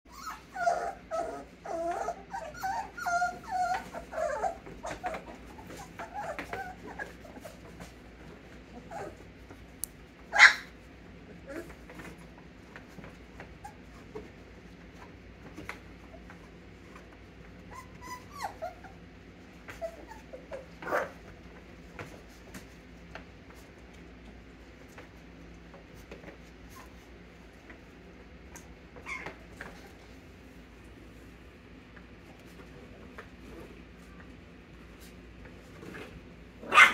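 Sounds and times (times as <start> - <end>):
puppies whining: 0.1 - 9.6, 13.4 - 21.6, 26.2 - 30.3.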